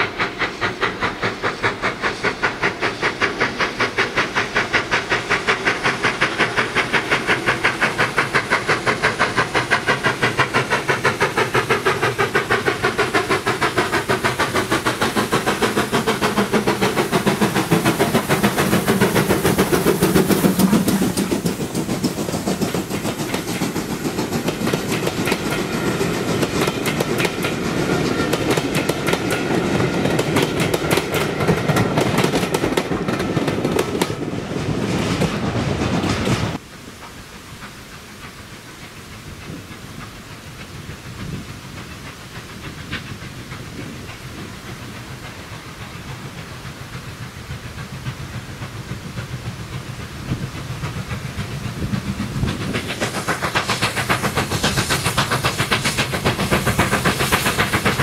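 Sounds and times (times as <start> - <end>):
steam locomotive exhaust chuffs: 0.0 - 58.0
train coaches rumbling by: 0.0 - 58.0
wheels clacking over rail joints: 0.0 - 58.0.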